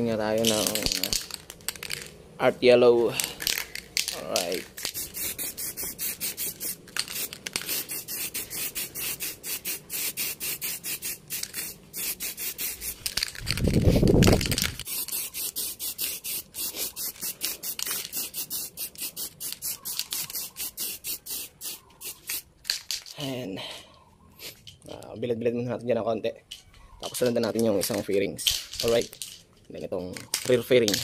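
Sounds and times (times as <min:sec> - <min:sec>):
spray can hissing: 0:03.4 - 0:22.9.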